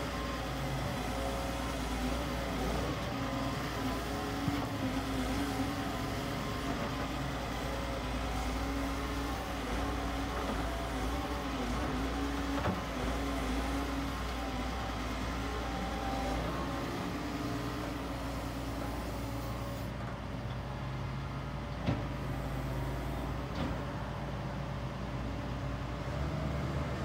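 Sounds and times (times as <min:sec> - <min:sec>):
excavator diesel engine running: 0:00.0 - 0:27.0.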